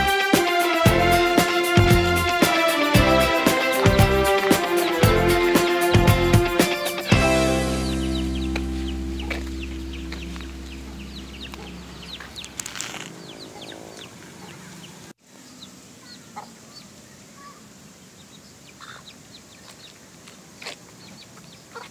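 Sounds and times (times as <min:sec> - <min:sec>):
background music: 0:00.0 - 0:12.5
chickens clucking: 0:07.8 - 0:16.8, 0:18.6 - 0:19.9, 0:20.6 - 0:21.9.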